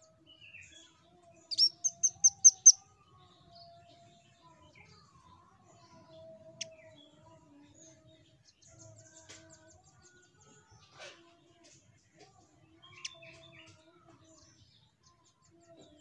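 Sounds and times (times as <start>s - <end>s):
bird calling with sharp high chirps: 1.5s - 2.8s.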